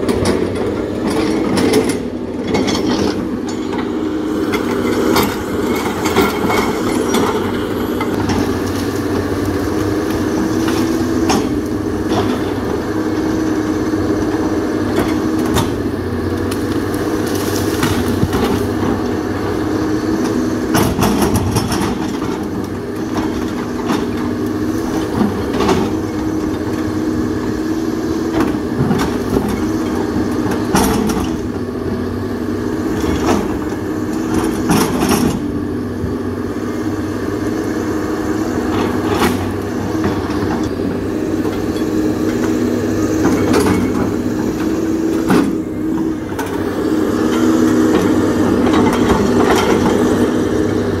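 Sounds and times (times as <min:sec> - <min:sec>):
excavator bucket clanking: 0:00.0 - 0:08.7, 0:20.2 - 0:26.9, 0:28.3 - 0:31.6, 0:32.9 - 0:35.6, 0:41.4 - 0:50.2
excavator diesel engine running: 0:00.0 - 0:51.0.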